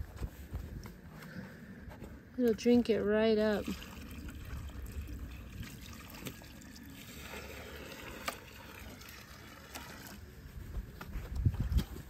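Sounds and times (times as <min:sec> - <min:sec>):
water trickling onto soil: 0:03.3 - 0:10.4.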